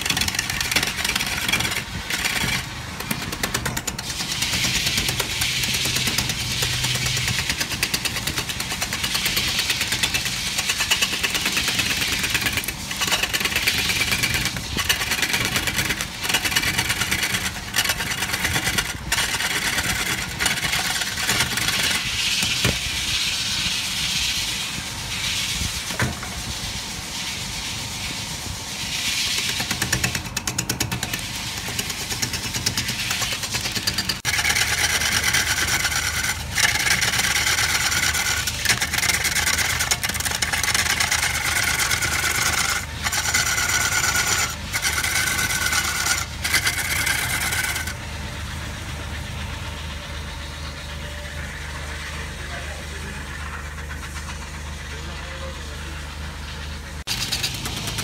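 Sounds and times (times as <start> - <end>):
lathe motor hum: 0.0 - 22.7, 31.2 - 58.0
gouge cutting turning wood: 0.0 - 22.8, 29.3 - 48.0
tool chatter on wood: 0.0 - 23.2, 28.9 - 58.0.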